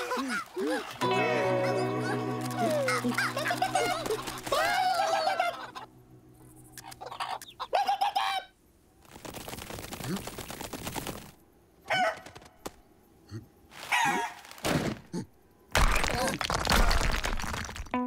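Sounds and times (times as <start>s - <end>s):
cartoon chickens clucking: 0.0s - 5.9s, 6.7s - 8.6s.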